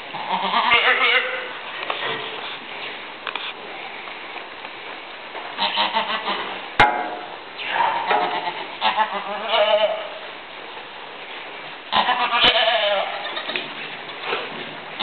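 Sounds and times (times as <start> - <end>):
goat bleating: 0.1 - 1.6, 5.6 - 6.6, 7.7 - 10.3, 11.9 - 13.7.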